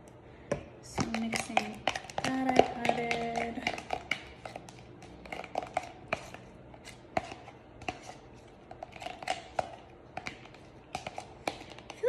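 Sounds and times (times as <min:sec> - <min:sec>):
utensil stirring in plastic container: 0:00.9 - 0:12.0.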